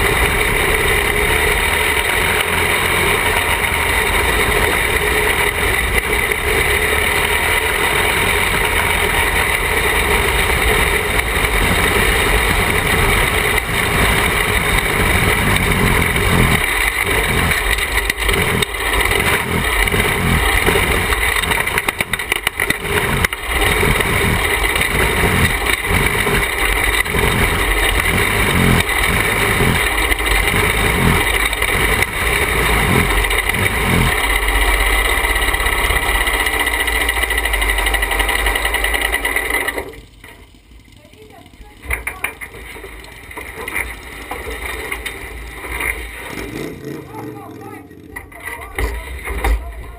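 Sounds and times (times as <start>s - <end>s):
kart engine running: 0.0s - 49.9s.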